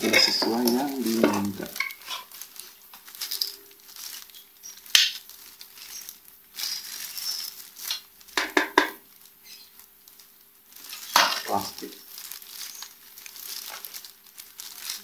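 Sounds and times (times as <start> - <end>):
plastic bag crinkling: 0.0 - 15.0
cluster of knocks: 8.4 - 9.0.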